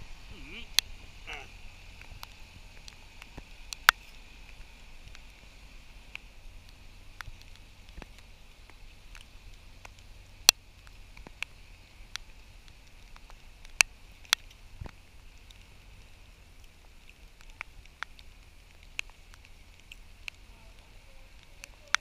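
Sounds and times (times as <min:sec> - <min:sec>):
faint steady hiss: 0:00.0 - 0:22.0
raindrops ticking: 0:00.0 - 0:22.0.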